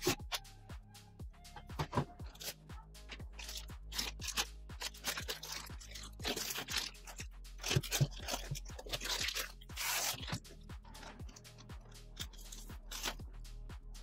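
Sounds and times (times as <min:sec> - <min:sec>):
background music with beat: 0:00.0 - 0:14.0
plastic bag crinkling: 0:02.2 - 0:11.6.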